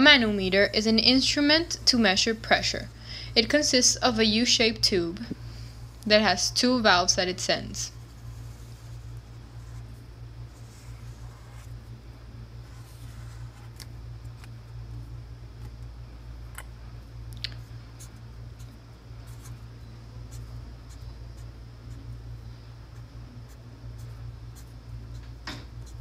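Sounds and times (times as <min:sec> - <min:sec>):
steady low hum: 0:00.0 - 0:26.0
marker scratching on paper: 0:07.9 - 0:11.8, 0:12.6 - 0:13.9.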